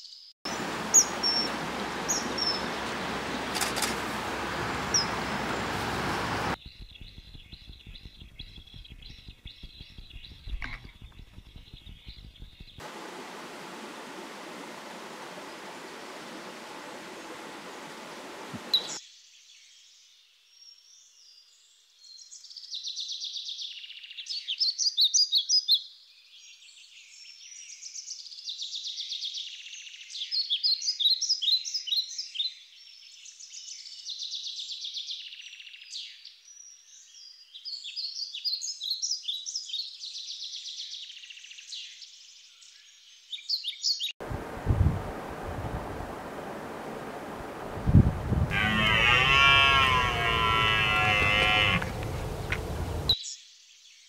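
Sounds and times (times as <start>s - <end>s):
songbird warbling and trilling: 0.5s - 3.5s, 4.8s - 5.3s, 18.6s - 19.0s, 48.4s - 53.4s
rumbling wind noise: 1.5s - 18.8s, 44.2s - 53.2s.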